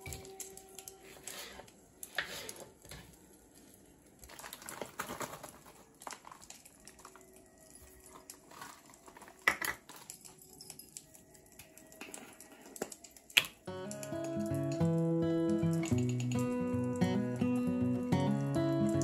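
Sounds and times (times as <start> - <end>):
rustling: 0.2 - 10.5.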